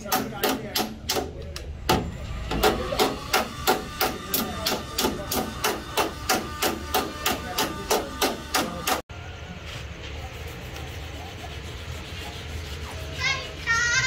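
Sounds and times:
hammer tapping sheet metal: 0.0 - 9.0.

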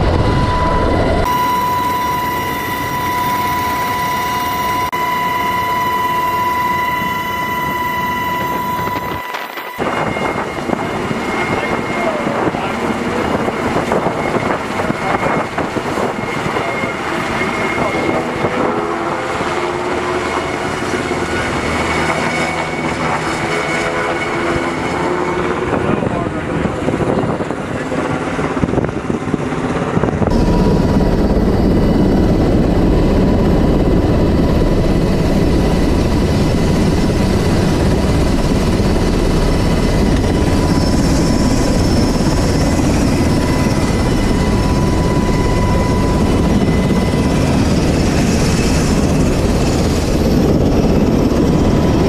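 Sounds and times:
thin high whine: 0.0 - 26.5, 30.3 - 50.7
helicopter rotor and turbine noise: 0.0 - 52.0.

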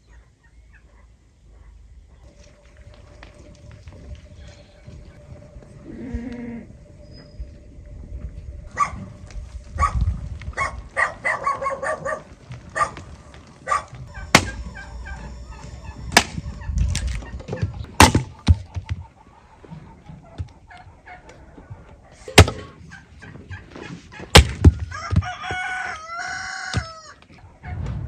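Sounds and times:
fowl calling: 10.6 - 27.5.

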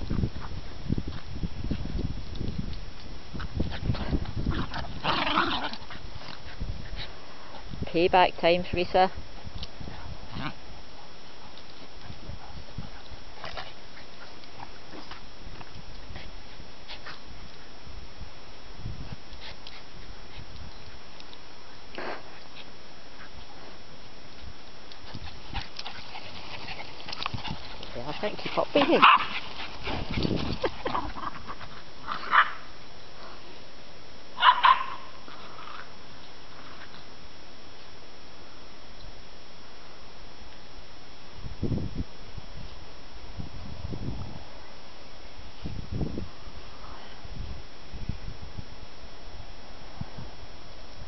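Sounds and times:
dogs play-fighting noises: 3.3 - 7.8, 9.3 - 17.7, 22.0 - 33.4
dog barking: 28.9 - 29.3, 34.4 - 35.1.

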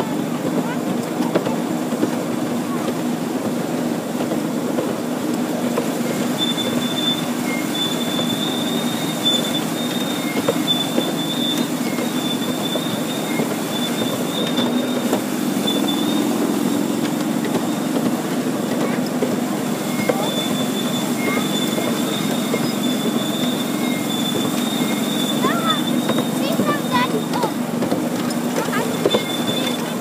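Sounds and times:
miniature train rumbling: 0.0 - 30.0
high-pitched wheel squeal: 6.0 - 18.1, 19.7 - 27.6, 28.3 - 30.0.

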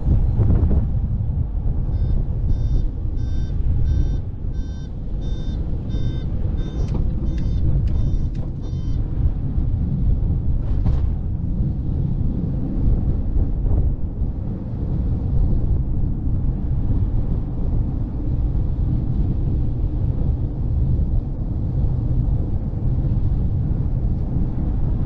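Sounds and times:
road rumble: 0.0 - 25.0
wind: 0.0 - 25.0
electronic beeper beeping: 2.0 - 9.0.

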